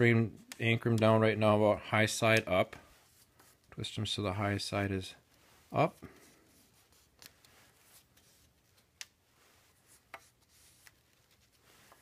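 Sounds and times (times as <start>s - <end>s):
faint rubbing of cork rings: 4.8s - 12.0s.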